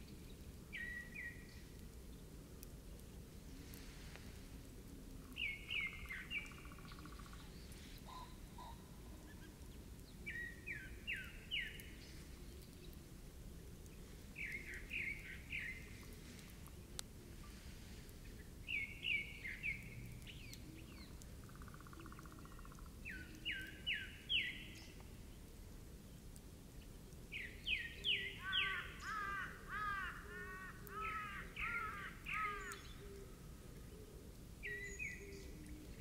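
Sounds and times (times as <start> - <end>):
faint outdoor hiss: 0.0 - 36.0.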